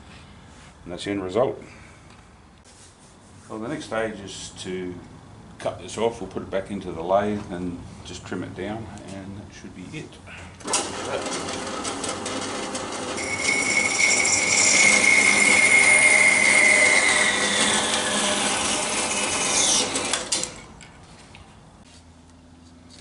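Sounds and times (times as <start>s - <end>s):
band saw cutting plastic: 10.7s - 20.7s.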